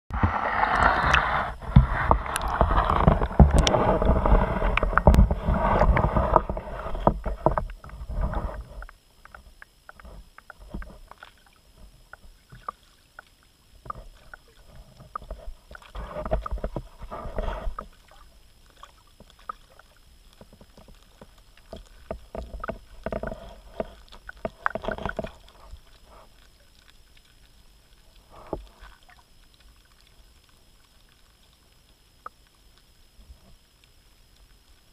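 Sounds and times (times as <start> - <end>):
water sloshing and churning: 0.1 - 32.0.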